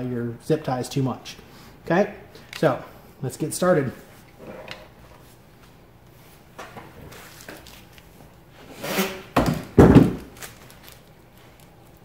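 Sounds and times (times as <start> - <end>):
heavy thumps and knocks: 9.4 - 10.3.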